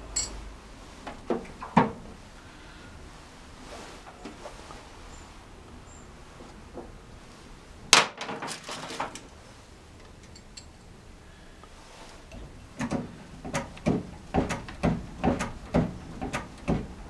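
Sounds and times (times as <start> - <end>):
steel parts clinking: 0.1 - 0.4, 10.2 - 10.9.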